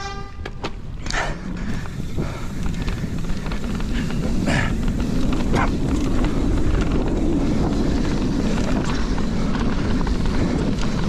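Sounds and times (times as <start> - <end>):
bike rattles and scrapes: 0.0 - 11.0
wind buffeting microphone: 0.0 - 11.0
tyres rolling over dirt: 0.5 - 11.0.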